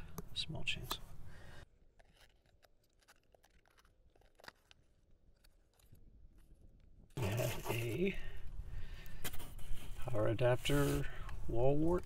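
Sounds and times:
cardboard box crackling: 2.0 - 5.9.

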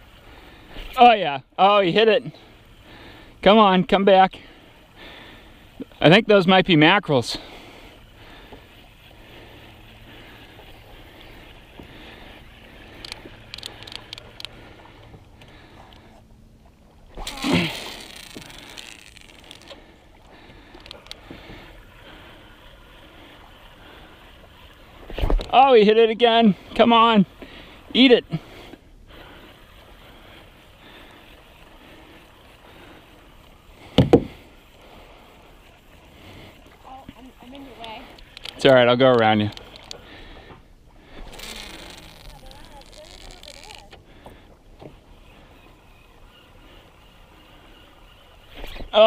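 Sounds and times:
fishing reel cranking hum: 7.1 - 16.3, 16.9 - 25.6, 26.5 - 49.0
reel clicks: 7.9 - 16.3, 17.1 - 25.6, 28.7 - 49.0
open air hiss: 17.0 - 49.0.

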